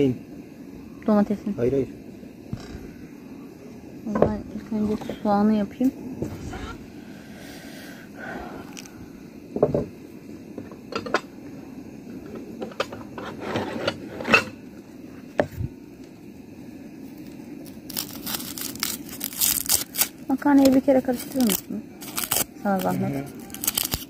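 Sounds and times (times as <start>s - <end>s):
onion skin crackling and tearing: 17.6s - 24.0s.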